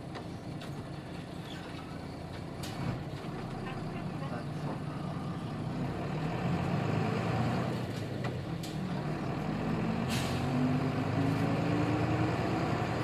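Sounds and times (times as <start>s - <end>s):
bus diesel engine running: 0.0s - 13.0s
air brake hiss: 10.0s - 10.6s.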